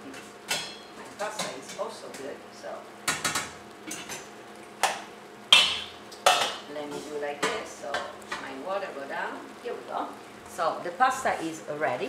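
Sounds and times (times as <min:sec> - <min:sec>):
utensil knocking on metal pot: 0:04.8 - 0:06.6.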